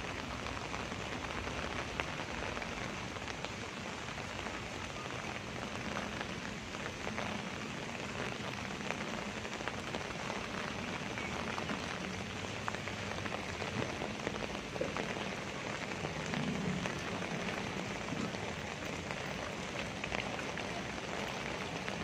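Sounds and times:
rain on wet paving: 0:00.0 - 0:22.0.

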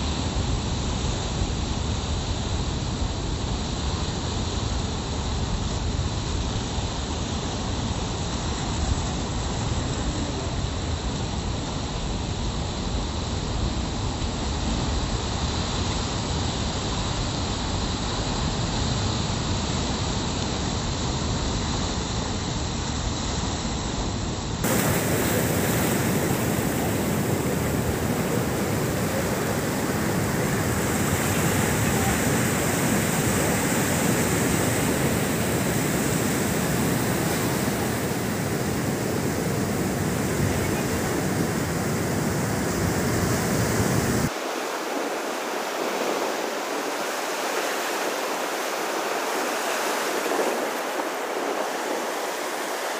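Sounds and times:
surf breaking on rocky shore: 0:24.6 - 0:52.9.

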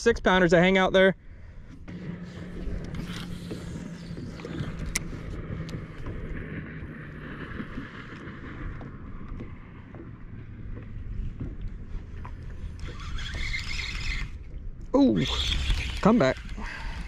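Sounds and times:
steady low hum: 0:00.0 - 0:17.0
water lapping at boat hull: 0:01.3 - 0:17.0
wind on microphone: 0:01.6 - 0:17.0.

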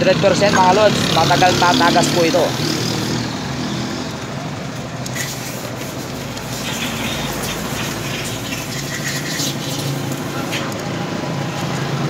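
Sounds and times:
vehicle engine running: 0:02.4 - 0:12.0.

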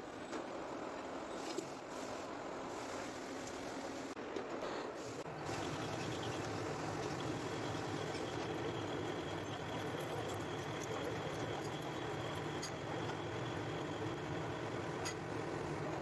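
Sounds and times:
lathe humming: 0:05.3 - 0:16.0.

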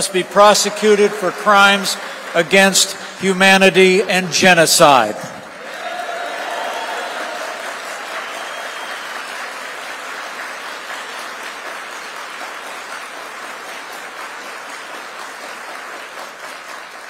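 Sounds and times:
audience applauding: 0:00.0 - 0:04.3, 0:05.4 - 0:17.0.

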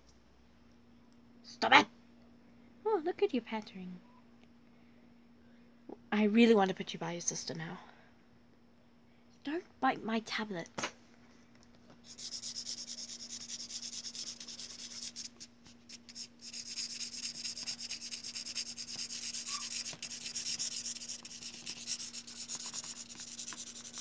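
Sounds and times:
faint steady hum: 0:00.0 - 0:24.0
crayon scribbling on paper: 0:12.0 - 0:24.0.

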